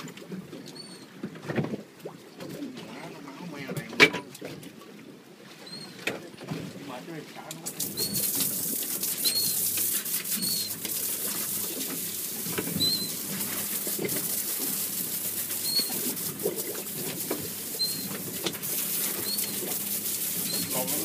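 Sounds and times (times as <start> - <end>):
wind and sea noise: 0.0 - 21.0
seabirds chirping: 0.6 - 1.2, 5.6 - 6.0, 7.9 - 8.3, 9.2 - 9.7, 10.4 - 10.8, 12.7 - 13.3, 15.5 - 16.2, 17.7 - 21.0.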